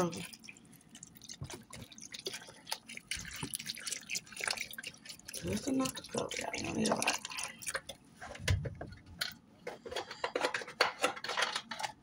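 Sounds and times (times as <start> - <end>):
utensils and dishes clinking: 9.2 - 12.0.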